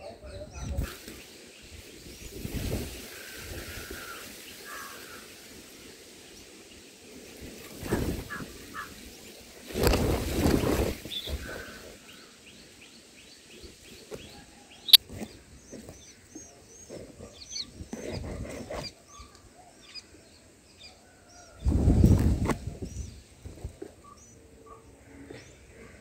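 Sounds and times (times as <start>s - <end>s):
rustling in nest: 0.8s - 12.8s.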